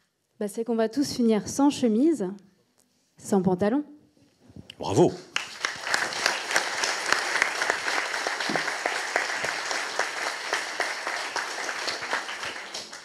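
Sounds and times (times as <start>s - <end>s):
audience applauding: 5.3s - 13.0s.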